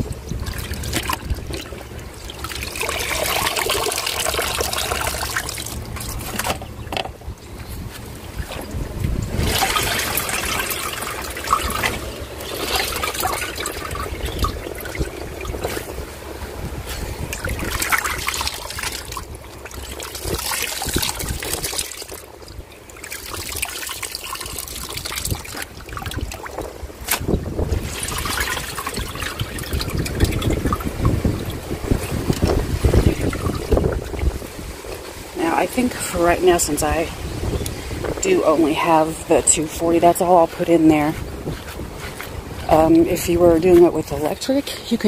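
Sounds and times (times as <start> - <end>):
wet laundry pushed in drum: 0.0 - 6.7, 7.7 - 22.3, 22.9 - 37.0
water trickling and dripping: 0.0 - 45.0.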